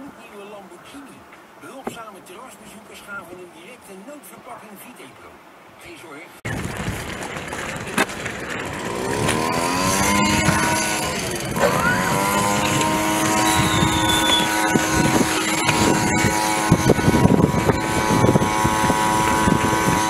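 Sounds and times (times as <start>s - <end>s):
wind rumble on microphone: 6.5s - 20.0s
two-stroke blower running: 6.6s - 20.0s.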